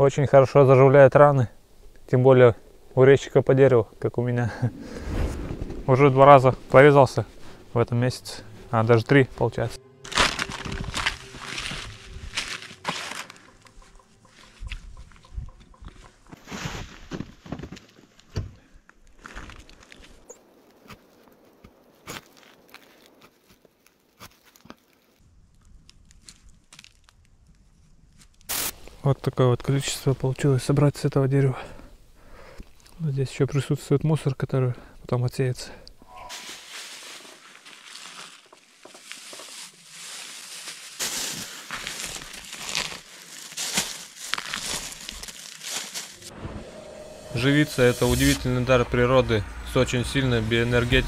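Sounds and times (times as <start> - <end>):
plastic bag crinkling: 10.0 - 14.0, 36.3 - 46.3.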